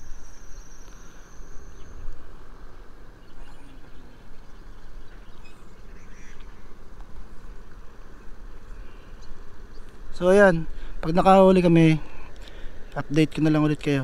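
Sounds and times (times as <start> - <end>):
faint chirps: 0.0 - 6.8
high thin insect-like whine: 0.0 - 13.3.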